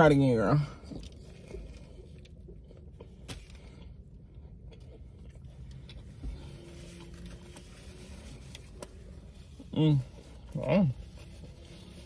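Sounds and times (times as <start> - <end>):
low rumble inside car cabin: 0.0 - 12.0
chewing food: 0.8 - 9.1.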